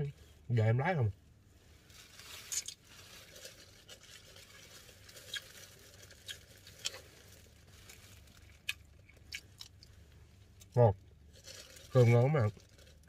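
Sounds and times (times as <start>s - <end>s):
soft chewing: 2.5s - 12.0s.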